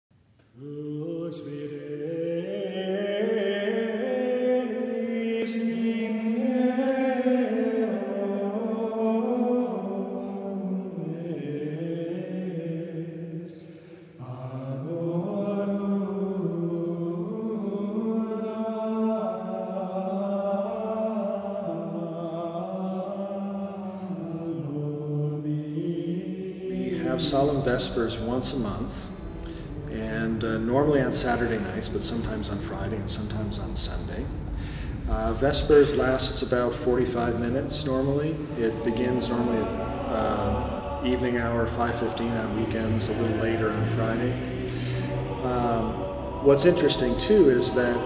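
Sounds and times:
men chanting together: 0:11.0 - 0:33.6, 0:34.9 - 0:48.0.

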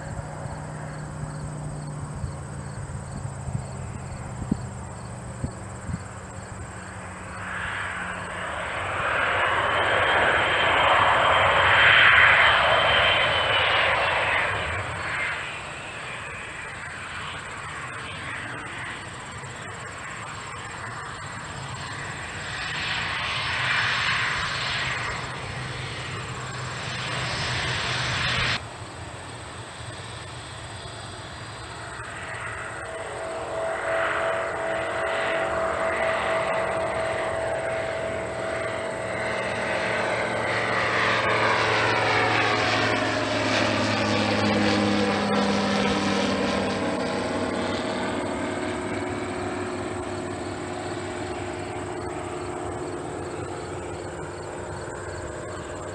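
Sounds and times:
jet engines rushing: 0:00.0 - 0:55.9
jet taxiing engine whine: 0:00.0 - 0:55.9.

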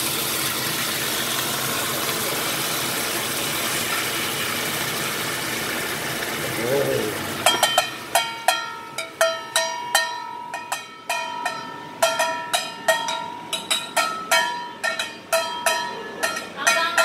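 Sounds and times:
utensil clanking on metal bowl: 0:07.4 - 0:17.0.

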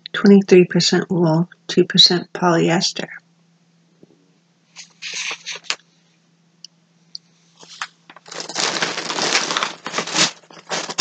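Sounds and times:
packaging rustling and crinkling: 0:04.8 - 0:05.8, 0:07.6 - 0:11.0.

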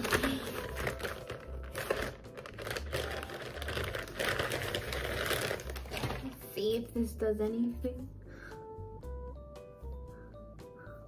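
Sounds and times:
plastic wrapping crinkling: 0:00.0 - 0:06.5.

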